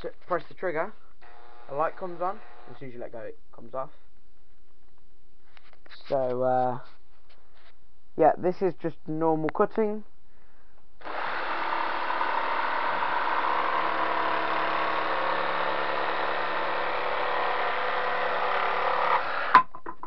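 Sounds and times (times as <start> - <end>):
jigsaw cutting through board: 1.2 - 2.8, 11.0 - 19.6.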